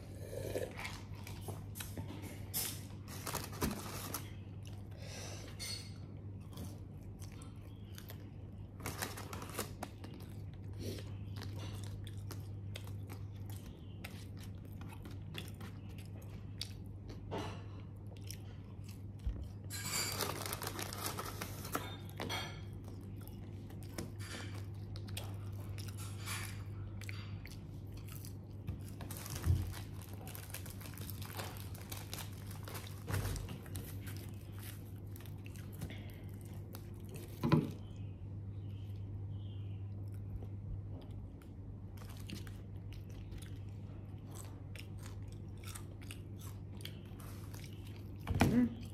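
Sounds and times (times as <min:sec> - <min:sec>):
chewing and crunching food: 0:00.0 - 0:48.9
steady low hum: 0:00.0 - 0:48.9
paper wrappers clicking: 0:02.9 - 0:04.4, 0:08.8 - 0:10.2, 0:20.0 - 0:22.0, 0:29.0 - 0:35.2.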